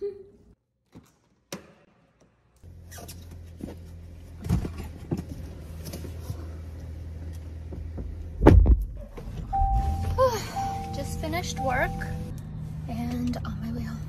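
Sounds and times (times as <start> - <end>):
car door shutting: 7.8 - 11.0
car engine idling: 9.2 - 14.0.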